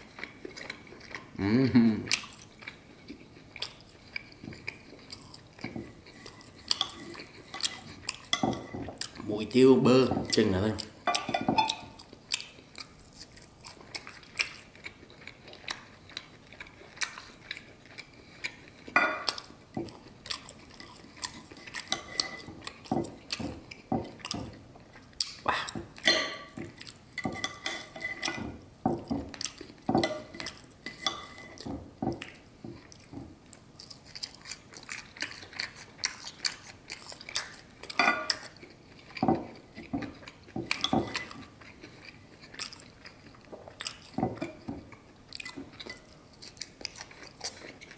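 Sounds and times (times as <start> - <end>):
chewing: 0.0 - 9.6, 10.2 - 47.9
knife and fork scraping plate: 20.6 - 23.6, 27.2 - 28.6, 29.9 - 31.7.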